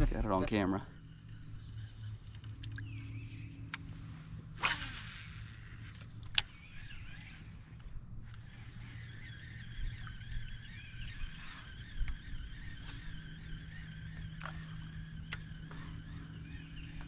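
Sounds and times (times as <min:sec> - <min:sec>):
low steady hum: 0:00.0 - 0:17.0
fishing reel whirring: 0:03.8 - 0:17.0.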